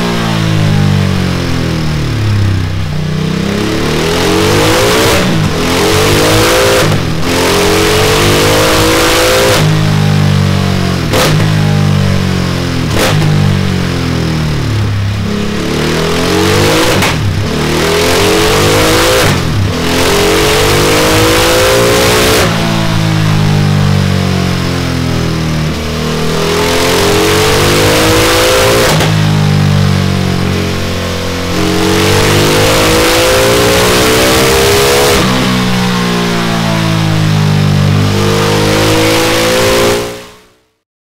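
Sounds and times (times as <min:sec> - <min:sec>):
motorcycle engine revving: 0:00.0 - 0:40.5.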